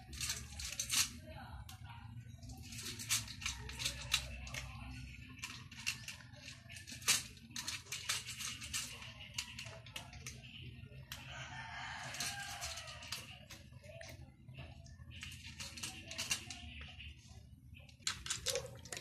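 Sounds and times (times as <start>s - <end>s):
cat crunching dry kibble: 11.1s - 16.9s, 17.9s - 19.0s.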